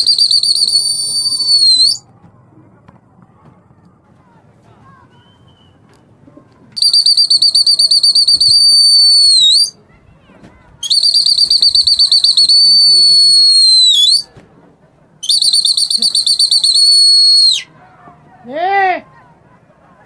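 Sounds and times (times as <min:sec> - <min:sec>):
shrill whistle blasts: 0:00.0 - 0:02.0, 0:06.8 - 0:09.8, 0:10.8 - 0:14.3, 0:15.2 - 0:17.7.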